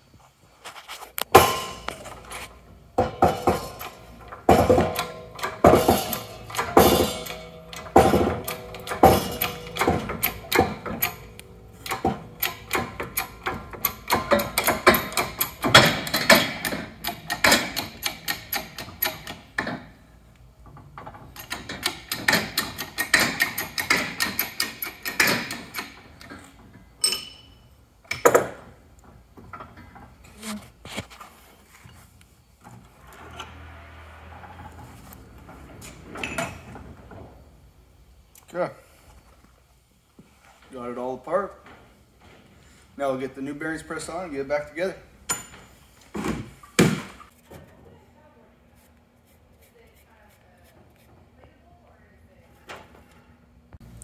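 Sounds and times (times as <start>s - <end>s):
hydraulic press clicking and clanking: 1.2s - 27.4s, 28.0s - 30.3s, 32.6s - 37.8s
sharp metal knocks: 1.3s - 2.1s, 3.0s - 19.8s.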